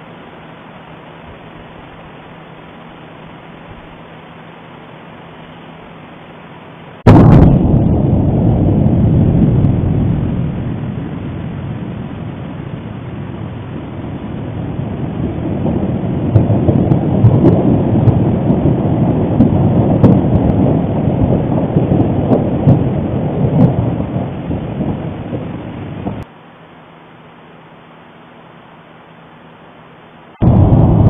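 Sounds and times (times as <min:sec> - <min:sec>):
deep continuous rumbling: 0:07.0 - 0:26.3, 0:30.4 - 0:31.0
sharp crackles: 0:07.1 - 0:26.2.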